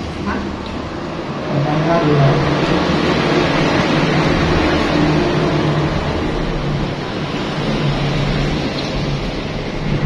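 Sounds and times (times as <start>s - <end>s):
constant rushing noise: 0.0s - 10.0s.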